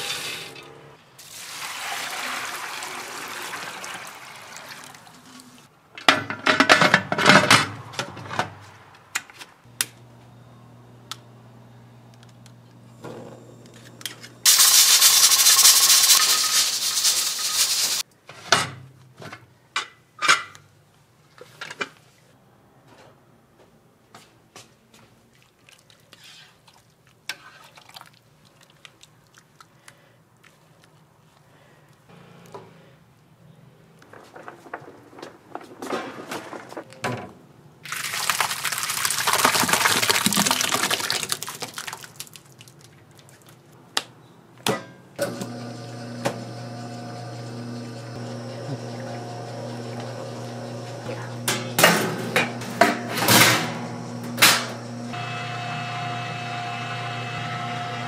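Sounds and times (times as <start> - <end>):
loud hiss: 14.5 - 18.0.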